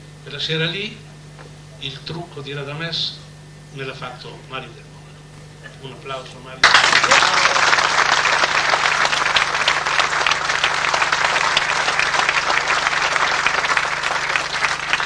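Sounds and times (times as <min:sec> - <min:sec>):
audience applauding: 0:06.6 - 0:15.0.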